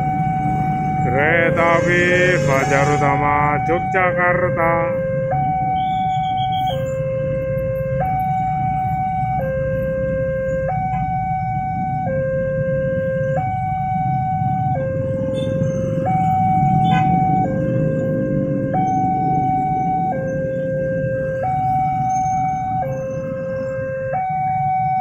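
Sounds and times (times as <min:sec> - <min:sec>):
level crossing two-tone alarm: 0:00.0 - 0:07.0.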